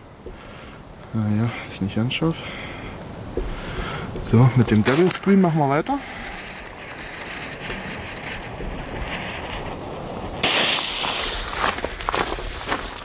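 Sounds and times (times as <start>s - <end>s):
low wind noise: 0.0s - 13.0s
firework fuse hissing loudly: 4.1s - 13.0s.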